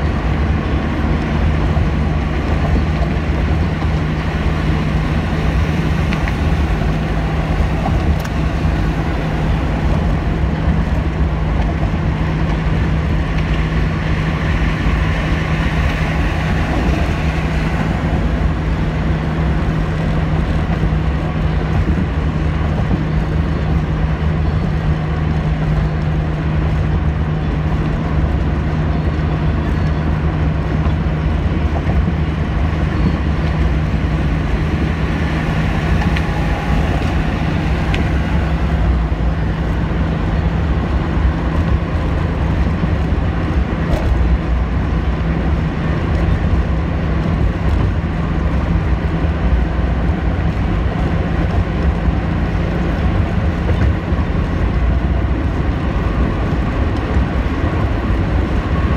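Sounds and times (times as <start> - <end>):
constant low hum: 0.0 - 58.9
engine and tyre drone: 0.0 - 58.9.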